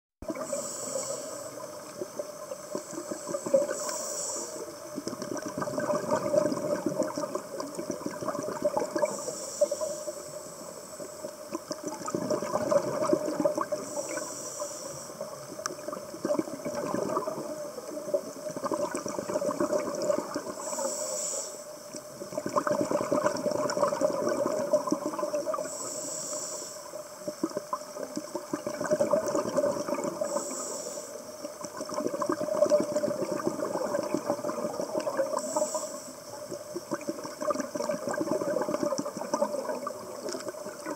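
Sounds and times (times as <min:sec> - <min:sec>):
gurgling exhaled bubbles: 0:00.2 - 0:04.0, 0:04.6 - 0:09.8, 0:11.3 - 0:14.4, 0:15.2 - 0:20.9, 0:22.1 - 0:25.9, 0:27.2 - 0:40.9
regulator inhale hiss: 0:00.3 - 0:05.2, 0:09.0 - 0:11.8, 0:13.2 - 0:16.0, 0:20.3 - 0:22.3, 0:24.6 - 0:28.1, 0:29.9 - 0:31.9, 0:34.1 - 0:36.8.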